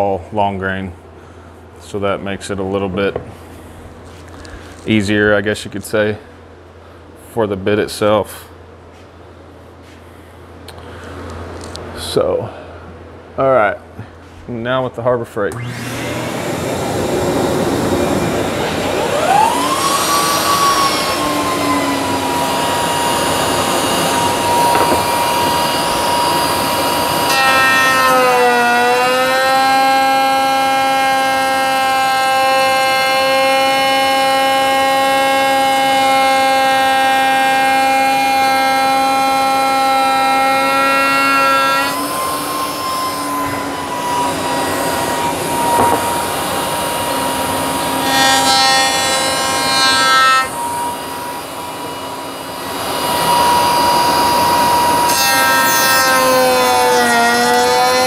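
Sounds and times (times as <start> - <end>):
router bit cutting wood: 15.5 - 58.0
router high whine: 15.5 - 58.0.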